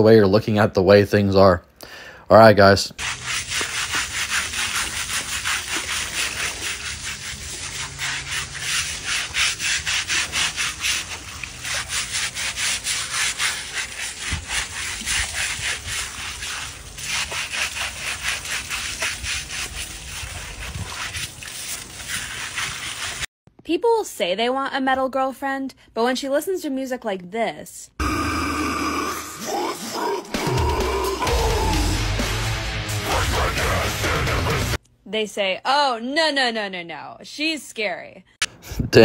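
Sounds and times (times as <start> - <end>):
stiff brush scrubbing: 3.0 - 23.3
water splashing: 3.0 - 23.3.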